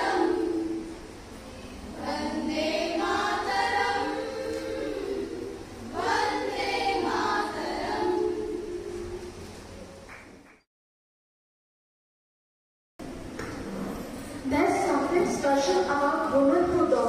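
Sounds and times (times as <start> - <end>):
women's choir singing: 0.0 - 9.7.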